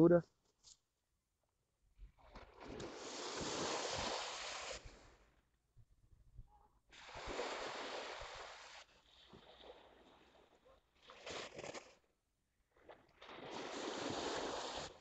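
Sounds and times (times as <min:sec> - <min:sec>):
surf washing onto beach: 0:02.7 - 0:05.0, 0:07.0 - 0:10.1, 0:13.2 - 0:15.0.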